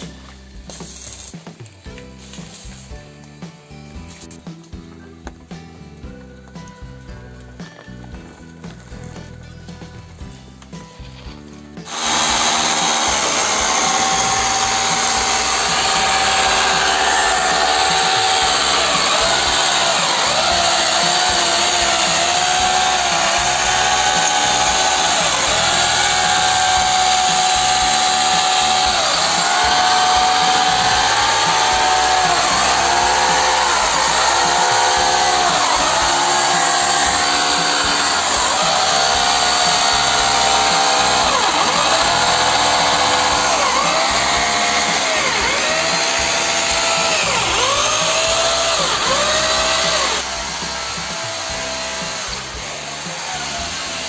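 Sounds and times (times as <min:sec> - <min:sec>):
angle grinder cutting steel: 0:11.8 - 0:54.0.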